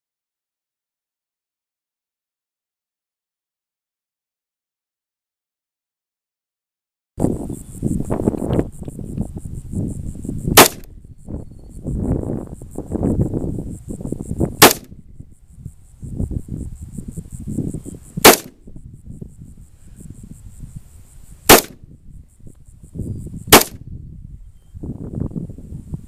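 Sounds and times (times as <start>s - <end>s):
rifle shots: 10.6s - 10.9s, 14.6s - 14.9s, 18.2s - 18.6s, 21.5s - 21.8s, 23.5s - 23.8s.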